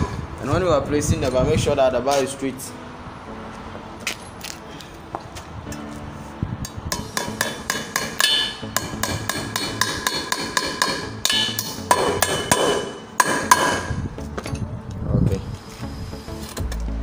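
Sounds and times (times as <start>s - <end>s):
hammer striking nails into wood: 6.9s - 14.0s.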